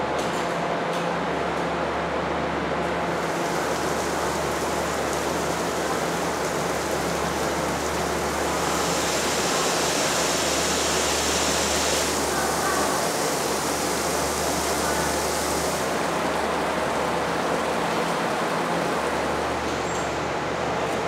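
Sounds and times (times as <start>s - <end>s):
low machinery hum: 0.0s - 21.0s
shower water hissing: 3.1s - 19.5s.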